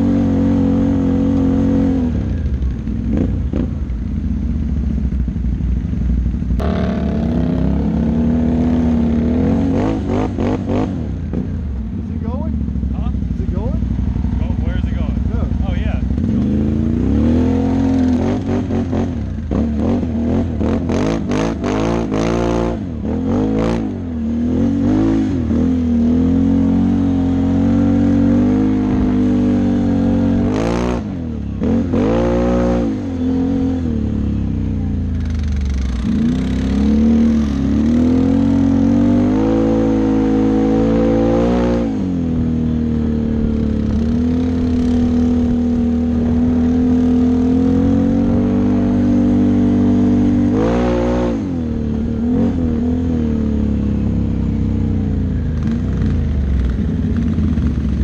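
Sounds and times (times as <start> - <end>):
atv engine revving: 0.0 - 58.0.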